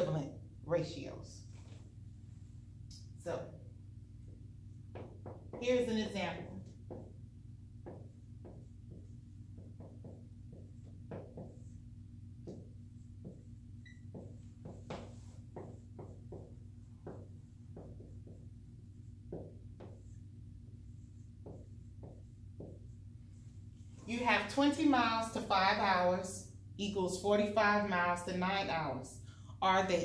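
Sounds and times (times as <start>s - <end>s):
marker writing on whiteboard: 4.1s - 25.0s.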